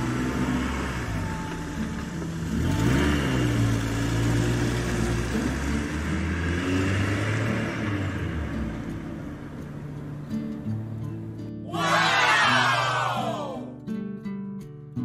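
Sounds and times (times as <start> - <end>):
vehicle engine running: 0.0 - 11.4.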